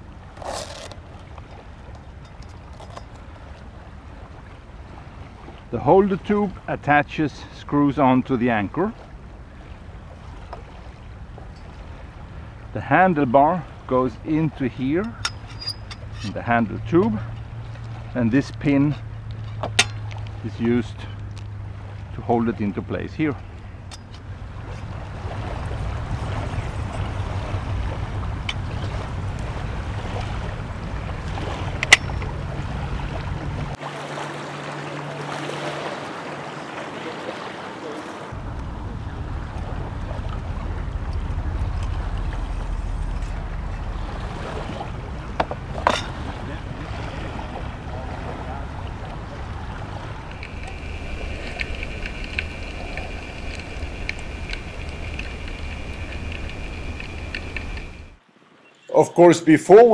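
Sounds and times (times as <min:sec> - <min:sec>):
underwater rumble and hiss: 0:00.0 - 0:58.2
surf waves: 0:00.0 - 0:59.9
wind buffeting microphone: 0:21.2 - 0:33.8, 0:38.2 - 0:58.2
thin high whine: 0:40.5 - 0:45.3, 0:50.2 - 0:58.2.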